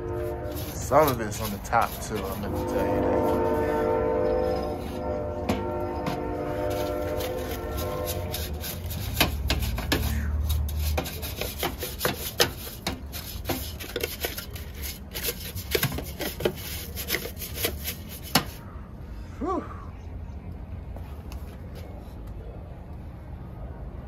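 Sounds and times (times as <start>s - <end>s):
bristle brush scrubbing plastic: 0.0s - 18.6s.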